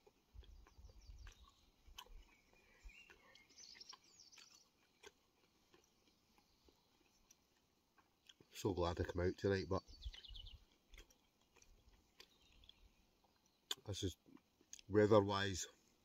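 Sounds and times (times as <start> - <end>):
faint bird chirping: 0.3 - 7.6, 8.5 - 11.1, 11.7 - 14.1.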